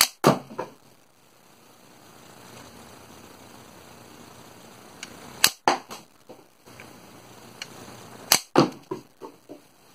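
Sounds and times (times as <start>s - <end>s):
toy rifle firing with sharp snap: 0.0s - 0.2s, 5.4s - 5.8s, 8.3s - 8.6s.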